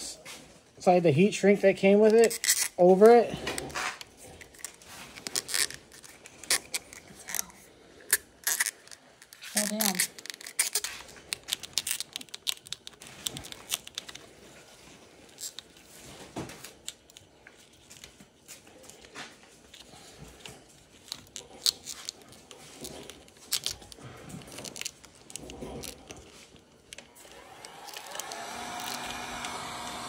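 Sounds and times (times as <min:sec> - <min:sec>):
plastic crinkling: 0:01.8 - 0:30.0
clicks and rustles: 0:03.4 - 0:29.7.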